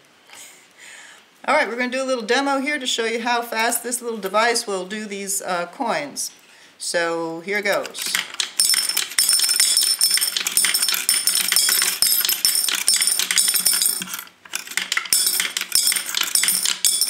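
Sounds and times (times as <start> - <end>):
coins clinking and rattling: 7.8 - 17.0.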